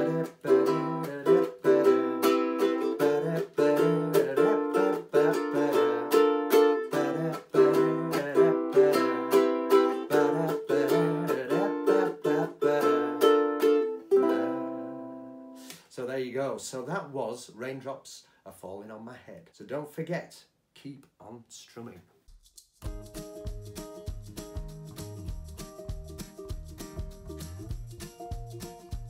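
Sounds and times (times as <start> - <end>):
ukulele strumming chords: 0.0 - 15.7, 22.8 - 29.0
percussive chops on ukulele strings: 22.8 - 29.0.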